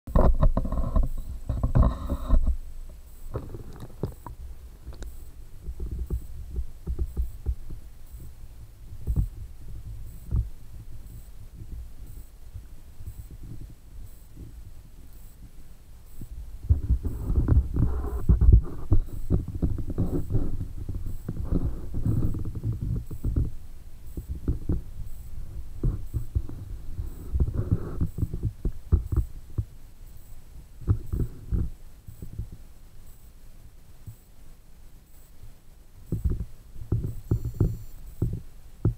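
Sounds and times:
muffled underwater thumps and knocks: 0:00.1 - 0:02.6, 0:05.6 - 0:08.3, 0:09.0 - 0:10.5, 0:16.2 - 0:23.6, 0:24.2 - 0:24.9, 0:25.8 - 0:29.7, 0:30.8 - 0:32.6, 0:36.1 - 0:38.9.

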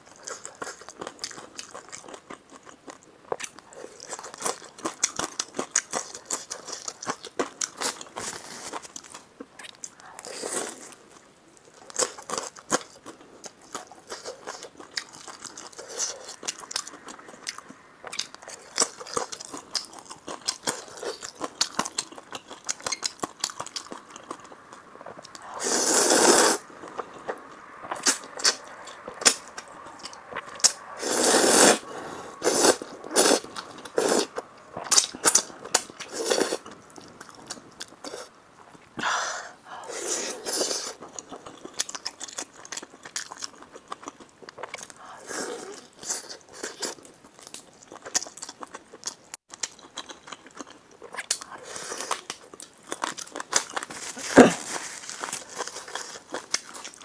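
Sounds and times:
wet chewing and lip-smacking: 0:11.7 - 0:25.5, 0:40.5 - 0:45.1, 0:45.7 - 0:54.5, 0:55.2 - 0:57.0
loud noodle slurp: 0:25.6 - 0:26.7, 0:31.0 - 0:34.3, 0:36.1 - 0:36.6.

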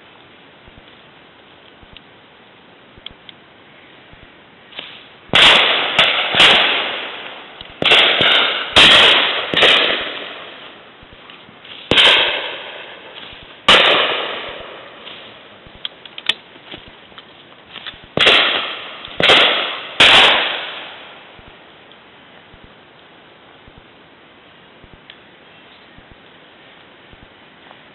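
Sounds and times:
shotguns firing with echo: 0:04.8 - 0:10.7, 0:11.9 - 0:15.5, 0:18.1 - 0:21.3.

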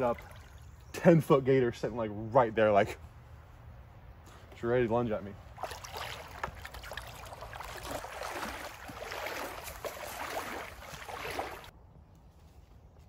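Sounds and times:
footsteps crunching dry leaves: 0:07.4 - 0:11.7.

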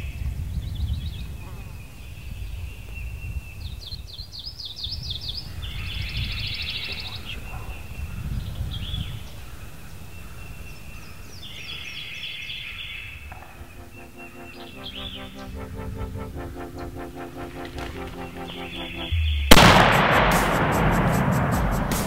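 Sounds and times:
songbirds singing: 0:00.0 - 0:19.5
low rumble: 0:13.4 - 0:22.0
music: 0:13.4 - 0:22.0.

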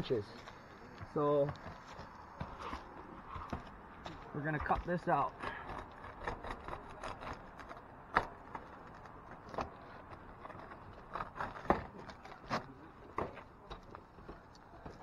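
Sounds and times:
snips cutting roof shingle: 0:01.0 - 0:15.0.

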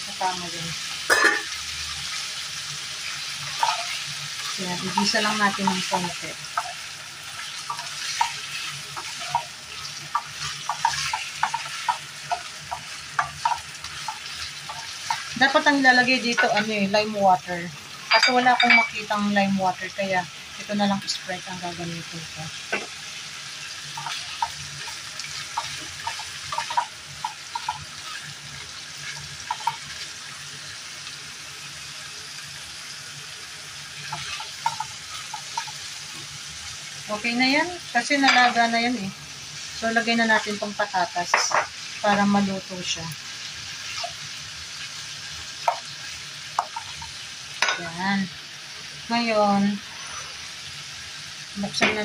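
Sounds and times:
beef sizzling in frying pan: 0:00.0 - 0:52.0
wooden spatula clacking on pan: 0:09.0 - 0:15.3, 0:25.5 - 0:27.8, 0:29.5 - 0:29.8, 0:34.1 - 0:35.7, 0:46.6 - 0:47.0.

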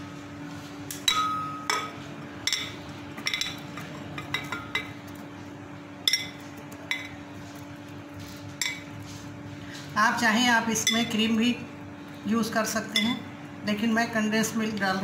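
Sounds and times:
steady low hum: 0:00.0 - 0:15.0
glass clinking: 0:01.0 - 0:05.0, 0:06.1 - 0:07.1.

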